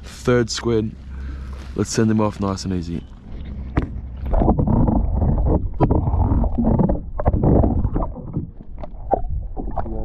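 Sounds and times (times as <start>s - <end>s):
wind rumbling on microphone: 2.8s - 10.0s.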